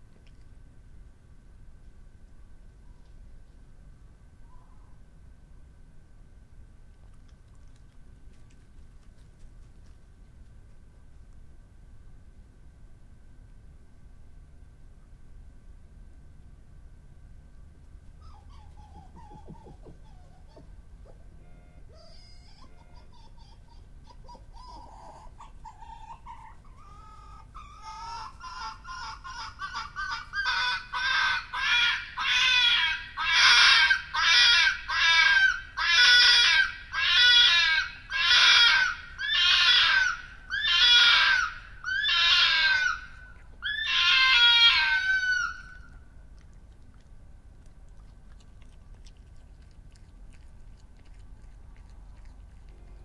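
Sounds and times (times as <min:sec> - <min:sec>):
fox screaming: 0:24.2 - 0:46.0.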